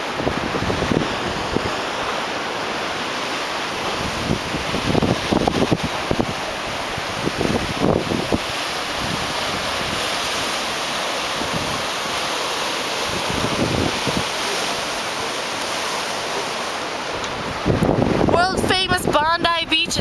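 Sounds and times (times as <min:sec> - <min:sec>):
wind thumping on microphone: 0:00.0 - 0:01.8, 0:03.9 - 0:10.2, 0:11.3 - 0:12.0, 0:13.0 - 0:14.4, 0:17.2 - 0:19.2
surf washing over rocks: 0:00.0 - 0:20.0.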